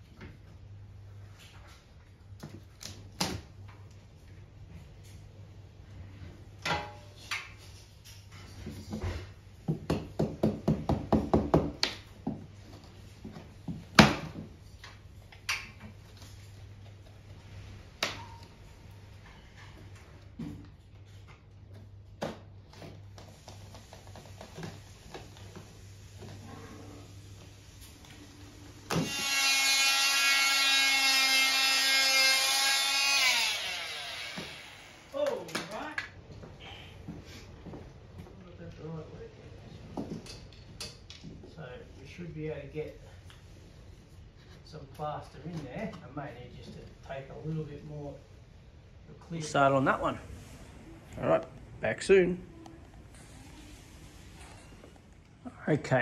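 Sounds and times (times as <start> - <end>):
oscillating multi-tool buzzing: 28.9 - 35.2
multi-tool winding down: 29.0 - 35.2.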